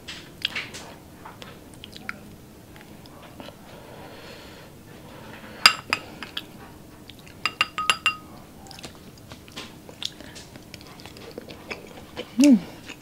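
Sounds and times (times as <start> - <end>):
wooden spoon clinking glass: 7.4 - 8.3.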